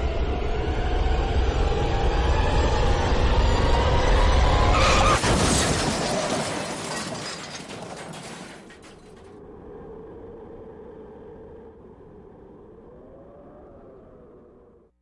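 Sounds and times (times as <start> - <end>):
car crash impact: 4.8 - 9.3
glass shattering: 4.8 - 9.3
crackling debris: 4.8 - 9.4.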